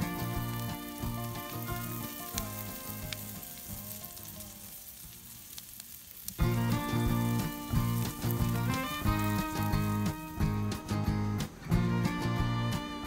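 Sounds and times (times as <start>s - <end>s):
food frying over a campfire: 0.0s - 13.0s
music with a low beat: 6.4s - 13.0s.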